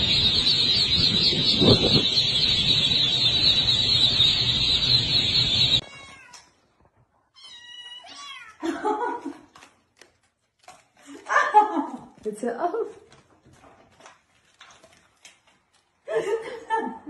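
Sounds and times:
chicks peeping: 0.0s - 5.8s.

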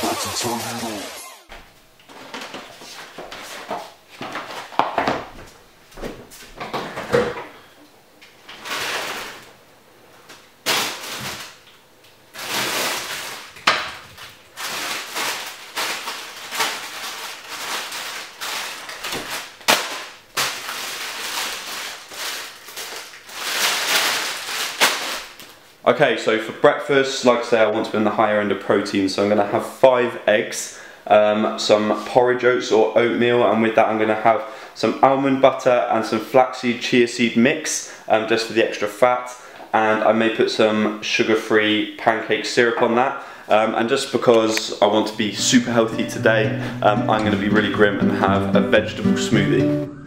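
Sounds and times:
plastic bag rustling: 8.4s - 9.5s, 10.6s - 11.6s, 12.3s - 25.7s.

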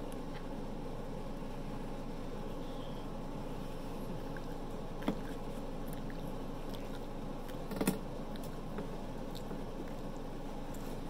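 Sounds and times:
person chewing: 4.0s - 11.0s.

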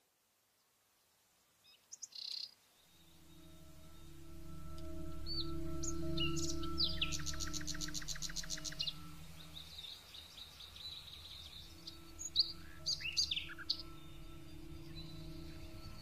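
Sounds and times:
small songbirds chirping: 0.6s - 16.0s
steady low hum: 3.1s - 9.8s, 11.3s - 16.0s.

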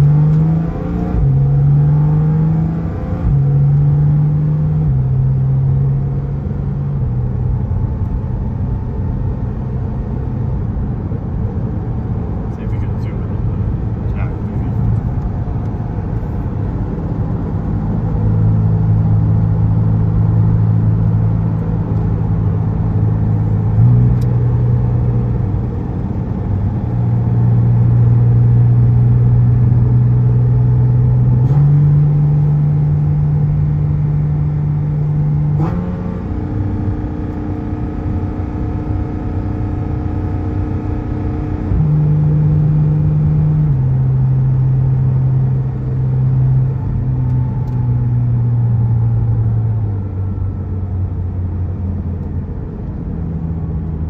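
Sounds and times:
car engine drone from cabin: 0.0s - 54.0s.

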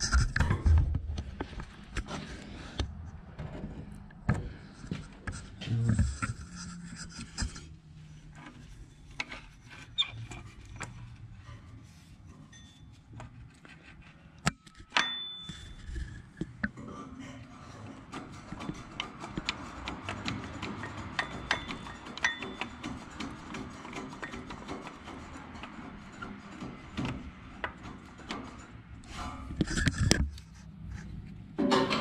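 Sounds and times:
hand tools clicking and scraping: 17.5s - 32.0s
sharp metal knocks: 18.1s - 28.8s, 31.6s - 32.0s.

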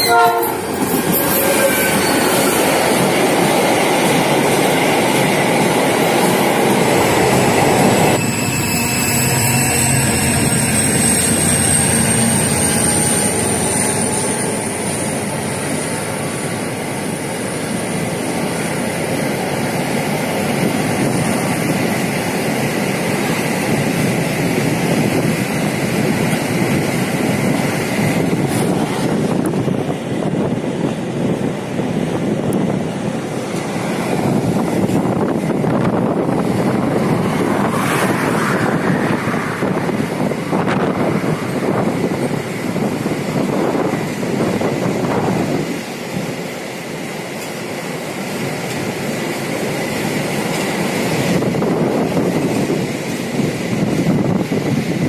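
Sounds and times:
freight train rumbling past: 0.0s - 55.0s
thin high squeal: 7.8s - 15.4s.

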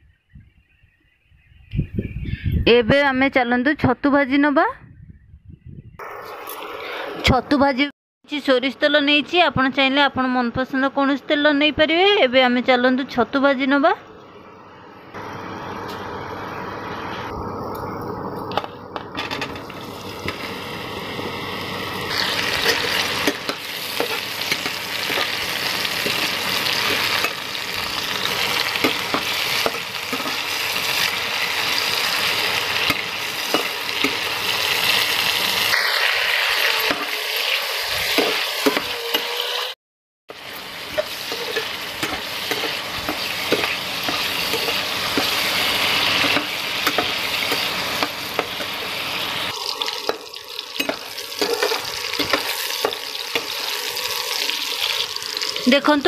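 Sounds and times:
mushrooms sizzling in oil: 19.6s - 39.7s, 40.3s - 56.0s
metal spatula scraping: 22.1s - 25.4s, 40.9s - 48.5s, 50.8s - 53.6s.

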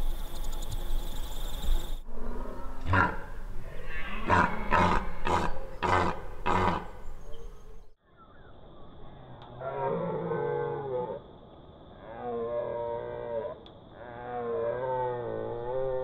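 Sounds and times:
deer stag roaring: 2.1s - 7.0s.

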